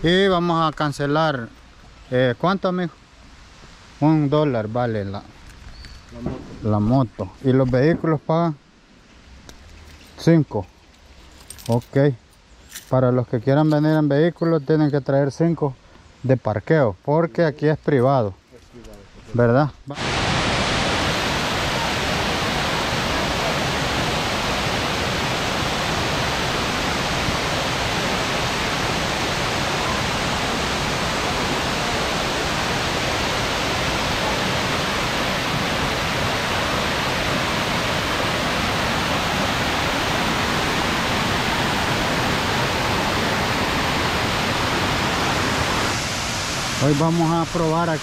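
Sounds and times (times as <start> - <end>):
waterfall rushing: 20.0 - 48.0.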